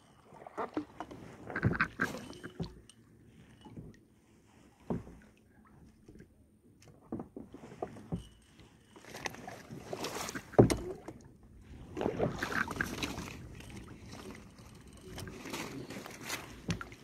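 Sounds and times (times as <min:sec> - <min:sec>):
water splashing: 0:00.0 - 0:02.9, 0:09.0 - 0:17.0.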